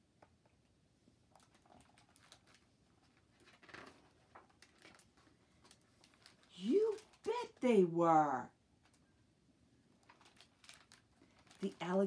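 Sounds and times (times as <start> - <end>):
book handling rustles and clicks: 1.3 - 7.6, 9.9 - 12.0
page turning: 1.4 - 7.6, 10.0 - 12.0.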